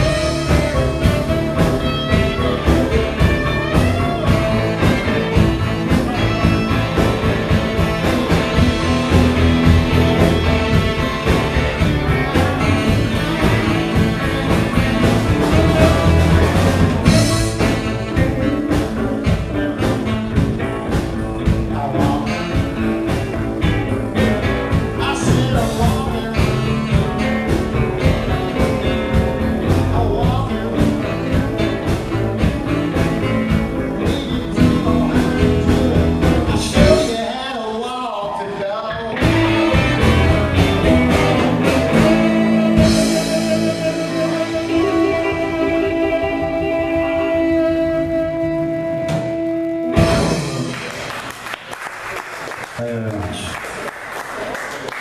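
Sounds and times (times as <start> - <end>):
saxophone: 0.0 - 21.0, 39.2 - 51.6
steady drum beat: 0.0 - 37.4, 39.2 - 51.5
electric guitars: 0.0 - 55.0.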